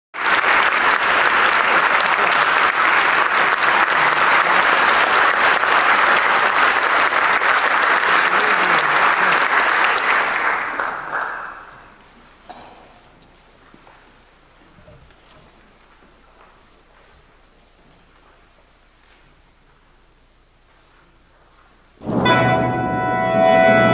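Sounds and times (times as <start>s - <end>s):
audience applauding: 0.2s - 12.1s.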